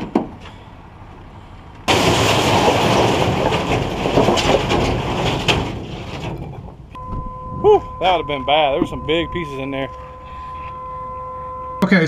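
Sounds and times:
rubble sliding and crashing: 0:01.8 - 0:07.0
concrete chunks knocking: 0:01.9 - 0:06.8.

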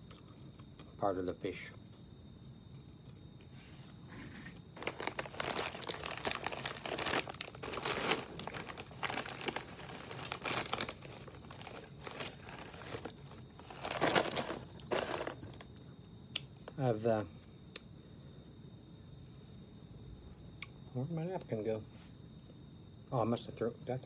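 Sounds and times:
chip bag crinkling: 0:04.8 - 0:15.7.

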